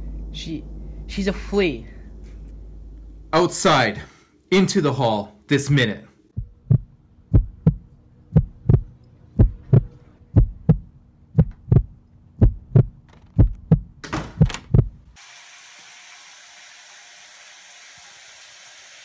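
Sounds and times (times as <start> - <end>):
steady low hum: 0.0 - 15.2
heartbeat thumps: 6.4 - 15.1.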